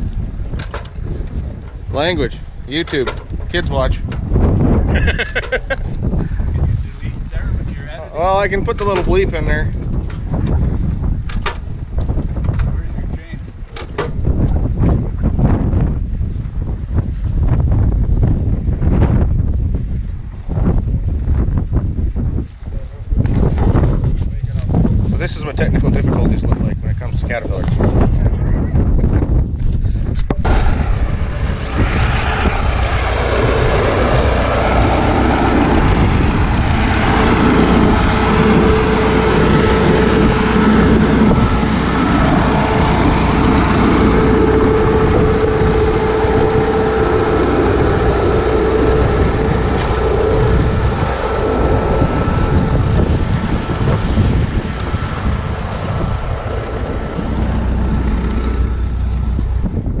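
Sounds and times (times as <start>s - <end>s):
steady whine: 0.0s - 15.1s, 30.2s - 60.0s
engine droning: 30.3s - 60.0s.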